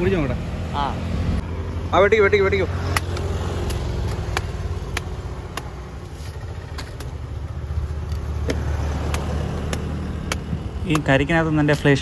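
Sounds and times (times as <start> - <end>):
knife chopping fruit: 2.9 - 5.9, 8.4 - 11.2.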